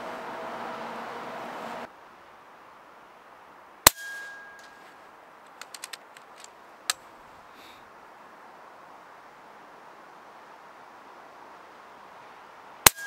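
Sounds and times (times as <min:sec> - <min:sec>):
light clicks: 0:04.6 - 0:07.1.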